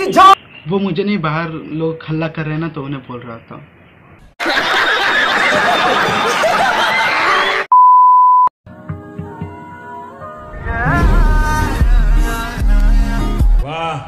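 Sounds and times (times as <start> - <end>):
high test-tone beep: 7.7 - 8.5
soft music with held notes: 8.7 - 10.4
loud busy music: 10.8 - 13.6.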